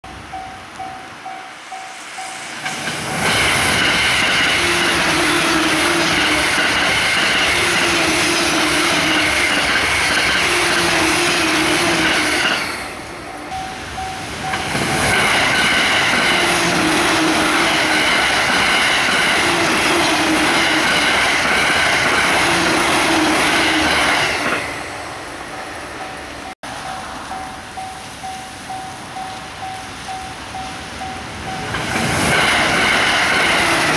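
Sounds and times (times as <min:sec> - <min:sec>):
level crossing warning bell: 0:00.0 - 0:02.6, 0:12.4 - 0:21.3, 0:25.0 - 0:33.9
electric trains rushing past: 0:00.0 - 0:33.9.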